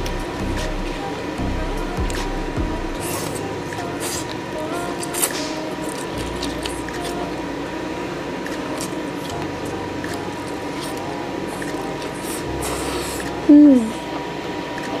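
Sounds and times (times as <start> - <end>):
noodles slurped and chewed: 8.4 - 13.4.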